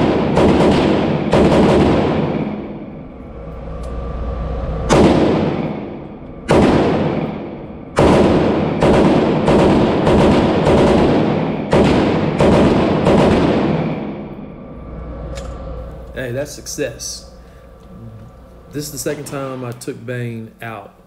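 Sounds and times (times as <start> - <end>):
rifle shots with echo: 0.0 - 2.9, 4.9 - 14.4.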